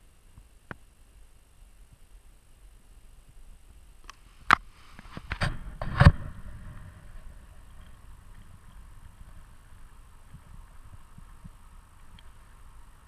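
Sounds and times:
wind rumbling on microphone: 3.2s - 13.0s.

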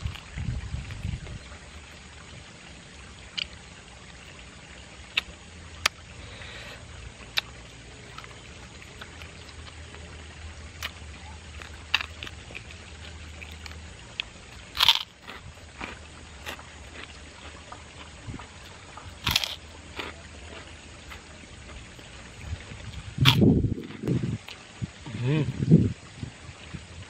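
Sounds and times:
low steady hum: 0.0s - 27.0s
crunchy chewing: 5.1s - 10.1s, 10.7s - 24.6s
mouth smacks: 6.6s - 9.7s, 18.6s - 20.2s, 22.9s - 23.5s.

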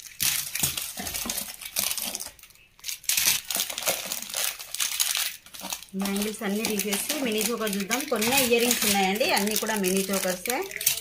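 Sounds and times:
plastic pouches crinkling: 0.0s - 11.0s
metal bangles clinking: 4.4s - 11.0s.

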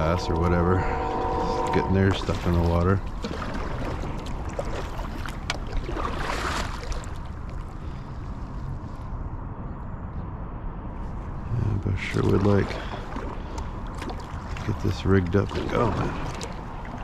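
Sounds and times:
paddle dipping into water: 0.0s - 8.0s, 12.0s - 17.0s
wind rumble on microphone: 0.0s - 17.0s
water drips and splashes: 2.0s - 8.0s, 12.0s - 17.0s.

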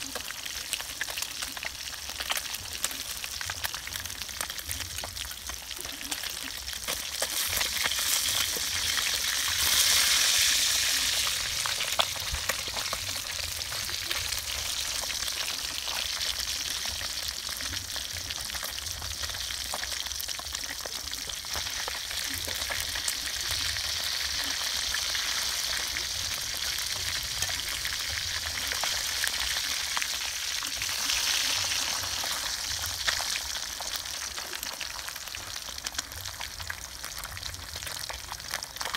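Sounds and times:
fish sizzling in hot oil: 0.0s - 38.9s.

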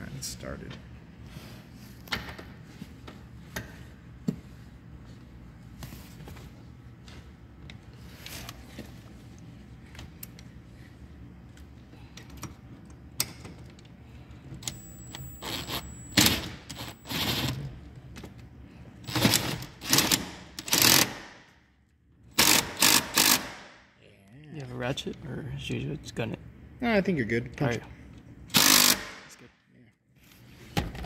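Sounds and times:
steady low hum: 0.0s - 31.0s
ratchet clicking: 22.4s - 23.6s, 28.5s - 29.1s.

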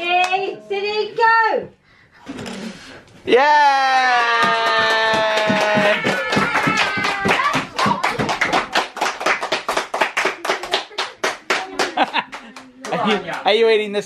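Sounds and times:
voices cheering: 3.3s - 8.4s
people clapping: 3.6s - 13.9s.

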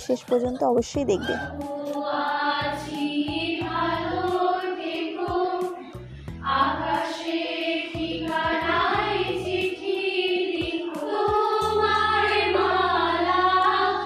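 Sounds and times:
group of women singing: 1.2s - 14.0s.

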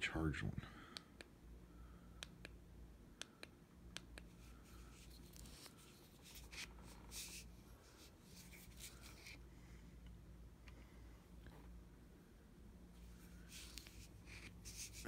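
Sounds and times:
soft rubbing from handling: 4.3s - 9.5s, 12.9s - 15.0s.

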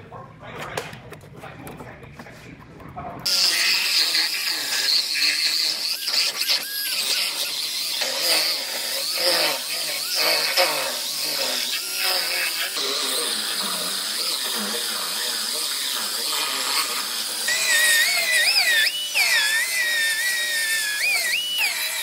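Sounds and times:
cut-off wheel cutting sheet metal: 3.3s - 22.0s.

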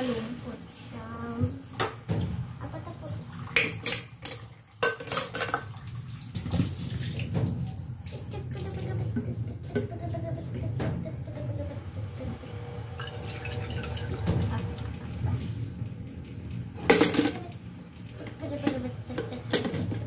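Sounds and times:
tap water running: 0.0s - 20.0s
plastic dishes clattering in sink: 3.5s - 11.2s, 16.7s - 17.6s, 18.2s - 20.0s.

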